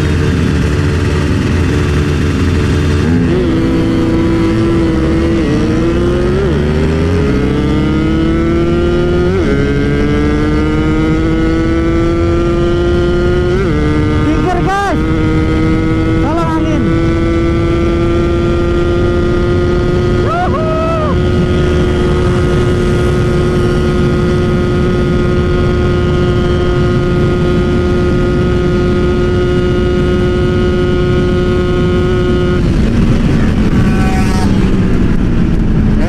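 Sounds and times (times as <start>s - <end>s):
motorcycle engine at full speed: 0.0s - 36.0s
wind rush: 14.9s - 36.0s.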